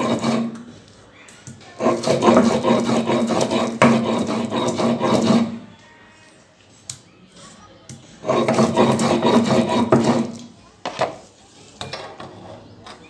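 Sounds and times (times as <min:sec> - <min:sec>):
stone roller rasping on grinding stone: 0:00.0 - 0:00.7, 0:01.8 - 0:05.6, 0:08.2 - 0:10.5.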